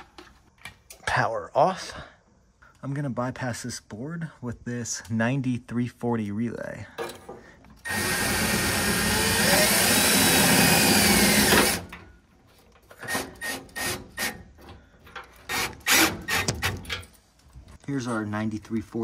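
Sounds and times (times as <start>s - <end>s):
cordless drill driving screw into metal: 7.8s - 12.0s, 12.9s - 14.4s, 15.4s - 17.0s.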